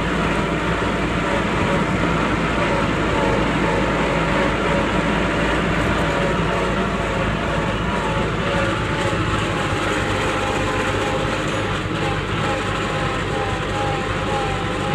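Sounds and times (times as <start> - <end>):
tractor diesel engine running: 0.0 - 14.9.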